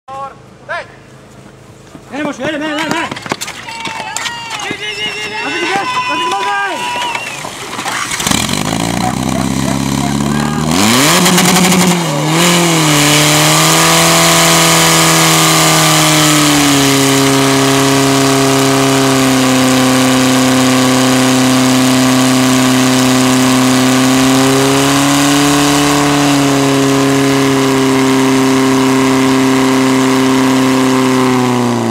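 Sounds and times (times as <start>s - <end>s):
fire pump engine running hard: 8.2s - 31.9s.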